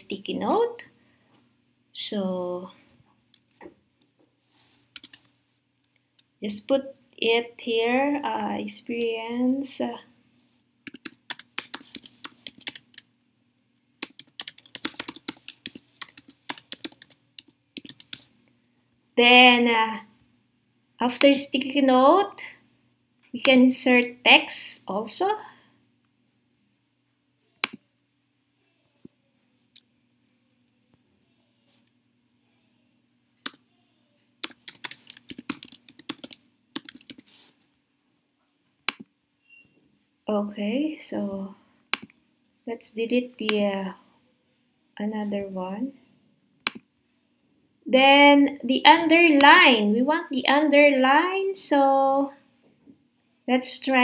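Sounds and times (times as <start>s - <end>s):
typing on computer keyboard: 5.0s - 5.3s, 10.9s - 13.0s, 14.0s - 18.3s, 34.4s - 37.3s.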